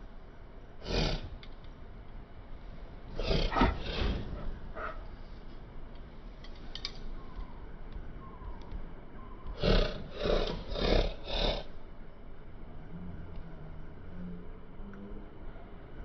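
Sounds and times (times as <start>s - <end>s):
monkey harsh breathy calls: 3.2s - 5.1s.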